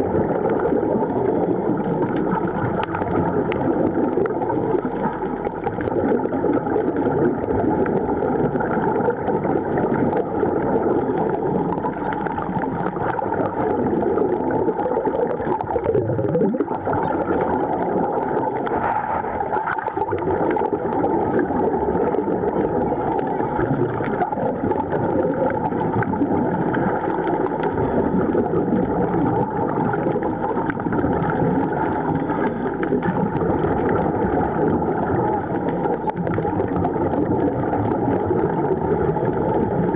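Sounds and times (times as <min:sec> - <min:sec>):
underwater bubbling: 0:00.0 - 0:39.9.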